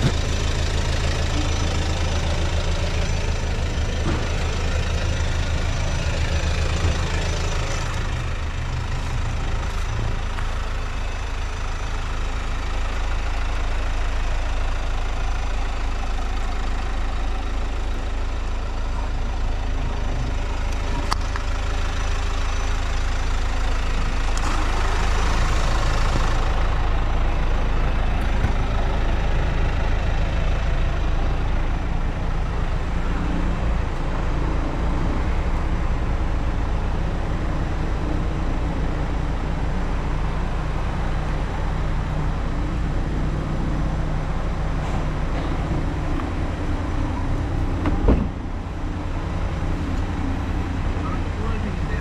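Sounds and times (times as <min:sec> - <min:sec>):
engine idling: 0:00.0 - 0:52.0.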